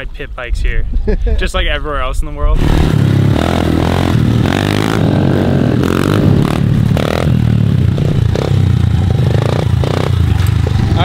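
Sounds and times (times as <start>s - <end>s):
small motorbike engines revving: 2.6s - 11.0s.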